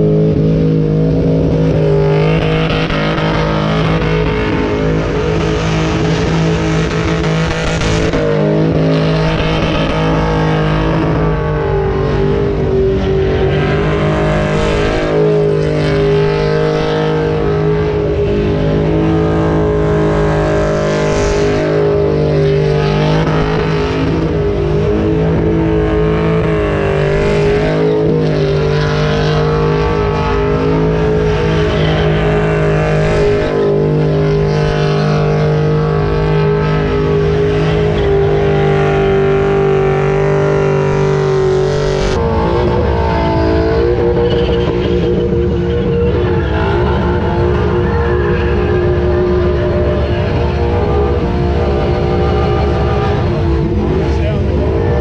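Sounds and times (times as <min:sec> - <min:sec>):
car engine at high revs: 0:00.0 - 0:55.0.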